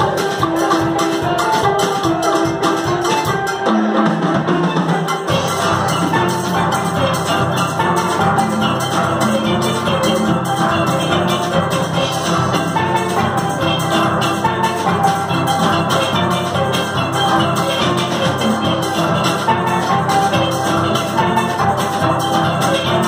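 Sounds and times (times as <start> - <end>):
steel pan band playing: 0.0 - 23.0.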